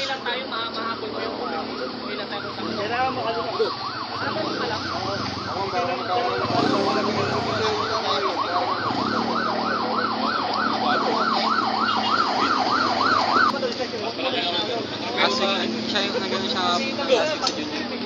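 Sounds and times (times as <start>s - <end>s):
siren yelping: 1.3s - 13.5s.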